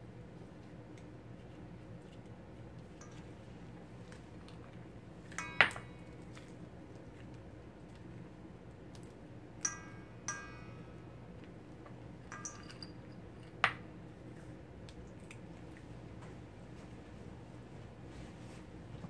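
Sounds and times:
nut pieces clinking in metal bowl: 0:12.3 - 0:13.8.

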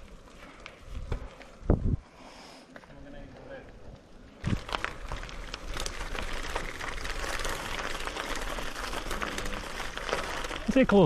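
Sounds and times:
bicycle riding rush: 0:00.0 - 0:02.1, 0:02.9 - 0:11.0
bicycle clicks and knocks: 0:04.4 - 0:11.0.

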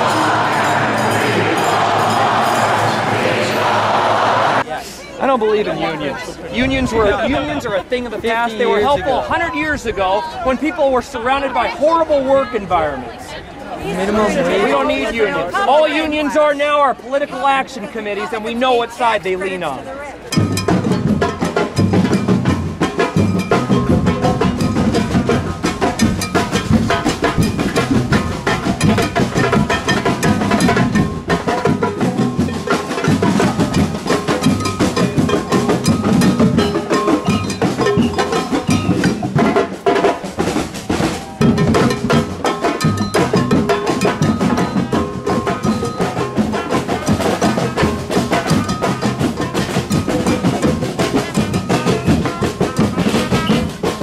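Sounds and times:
instruments playing along: 0:00.0 - 0:04.7, 0:18.6 - 0:54.0
snare and bass drums beating: 0:20.3 - 0:54.0.

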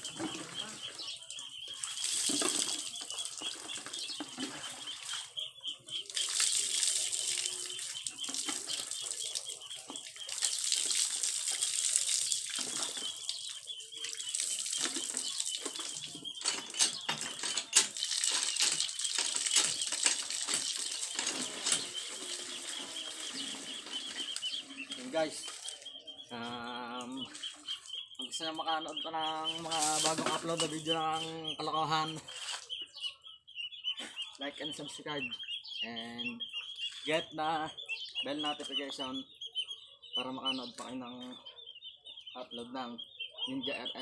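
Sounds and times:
water pouring into a bucket: 0:00.0 - 0:25.9, 0:29.6 - 0:30.9.

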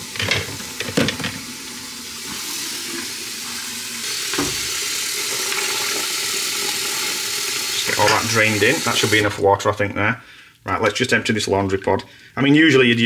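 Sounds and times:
tap water running into tub: 0:00.0 - 0:09.4.

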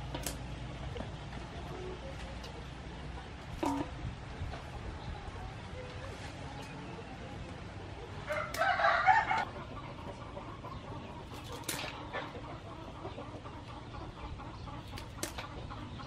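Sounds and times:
chicken clucking: 0:04.6 - 0:16.0
crabs clattering in metal basin: 0:11.4 - 0:12.0.

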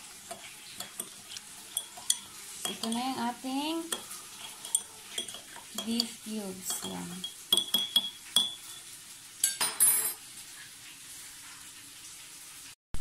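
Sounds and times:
spoon clinking against mug: 0:00.3 - 0:10.2.

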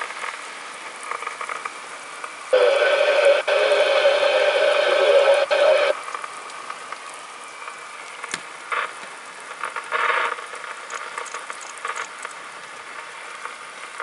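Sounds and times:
crackling bursts: 0:00.0 - 0:14.0
steady hiss: 0:00.0 - 0:14.0
loud radio static: 0:02.5 - 0:06.0, 0:08.7 - 0:09.0, 0:09.6 - 0:10.7.

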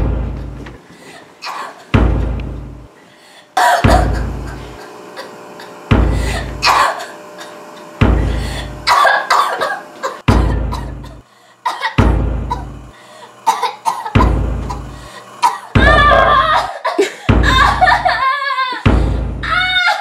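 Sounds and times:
deep booming hits: 0:00.0 - 0:00.7, 0:02.0 - 0:02.9, 0:03.8 - 0:04.8, 0:05.9 - 0:06.8, 0:08.0 - 0:08.9, 0:10.2 - 0:11.2, 0:12.0 - 0:13.0, 0:14.2 - 0:15.1, 0:18.9 - 0:19.5
girl coughing: 0:01.4 - 0:01.9, 0:03.6 - 0:04.6, 0:06.3 - 0:07.6, 0:08.9 - 0:12.7, 0:13.4 - 0:18.1.

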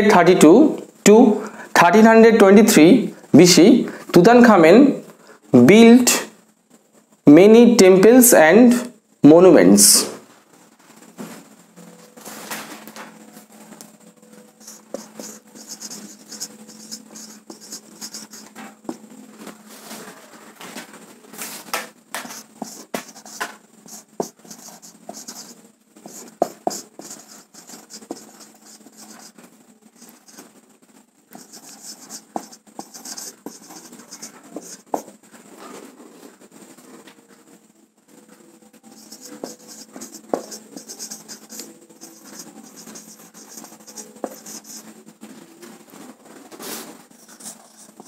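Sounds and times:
marker pen writing on whiteboard: 0:14.6 - 0:19.0, 0:22.2 - 0:29.4, 0:30.0 - 0:30.5, 0:31.3 - 0:35.1, 0:38.9 - 0:44.9, 0:47.1 - 0:48.0.

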